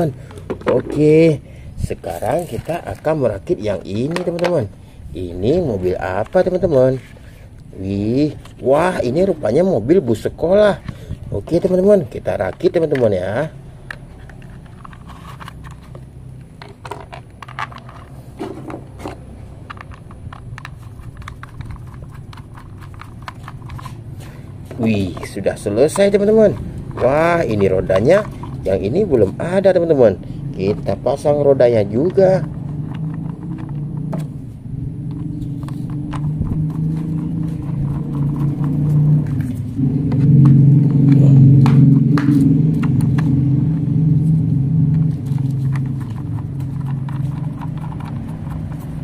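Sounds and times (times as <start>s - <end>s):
steady low hum: 0.0s - 49.0s
plastic toy parts clicking: 13.8s - 18.2s, 19.0s - 24.0s, 32.0s - 34.2s, 35.1s - 39.5s, 45.7s - 49.0s
toy screwdriver turning screw: 19.0s - 24.0s, 45.8s - 49.0s.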